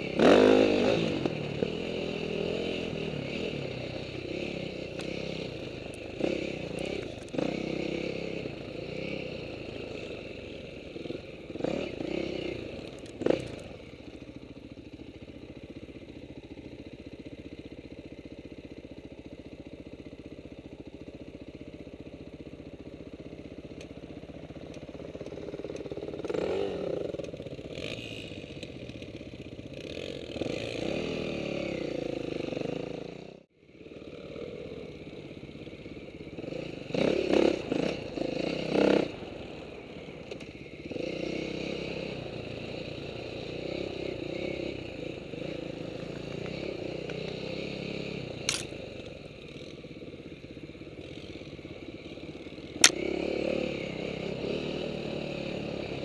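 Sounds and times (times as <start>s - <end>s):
dirt bike engine revving: 0.0s - 13.8s, 26.1s - 28.5s, 29.8s - 33.4s, 35.8s - 56.0s
clatter over rough ground: 48.3s - 49.7s.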